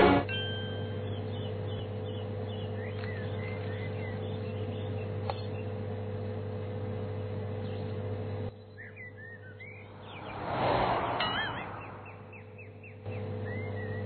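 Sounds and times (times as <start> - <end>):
vending machine humming: 0.0 - 9.8, 12.3 - 14.0
birds chirping: 0.8 - 5.9, 7.2 - 14.0.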